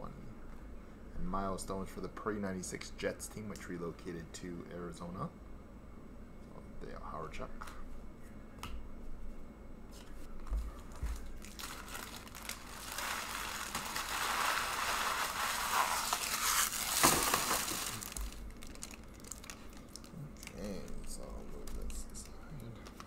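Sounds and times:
plastic wrapping crinkling: 10.6s - 23.0s
wrapping sharp crack: 10.8s - 23.0s.

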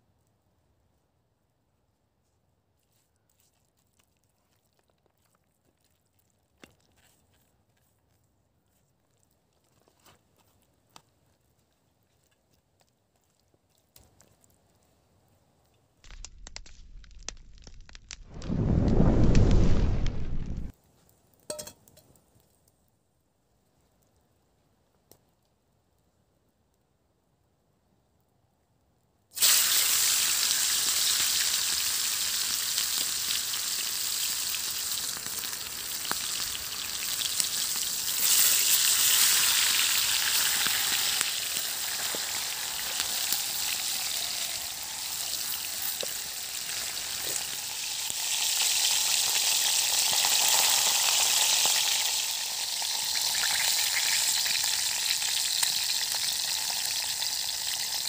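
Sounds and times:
chicken deep-frying in oil: 21.5s - 22.0s, 29.3s - 58.0s.

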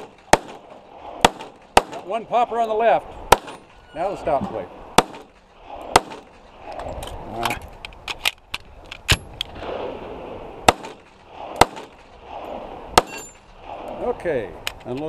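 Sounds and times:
pistol shots: 0.0s - 2.2s, 3.3s - 3.7s, 5.0s - 6.4s, 10.6s - 13.9s.

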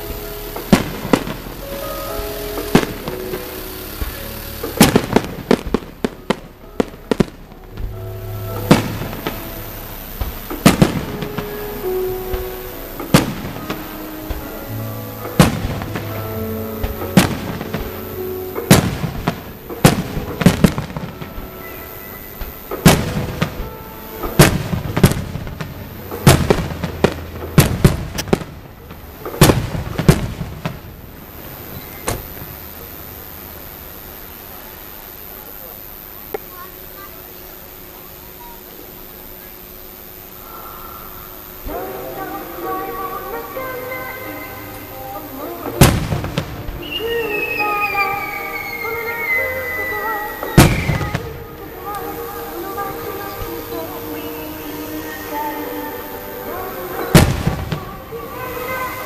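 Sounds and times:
melody playing: 0.0s - 28.7s
fireworks bursting bangs: 0.0s - 59.0s.

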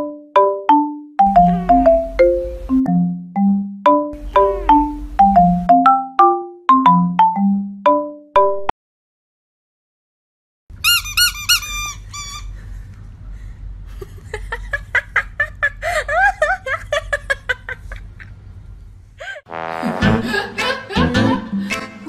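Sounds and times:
high-pitched squeaking: 10.8s - 12.6s.

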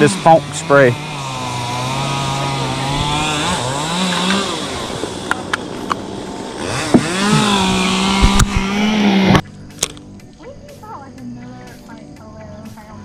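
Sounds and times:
small motor running: 0.0s - 9.4s.

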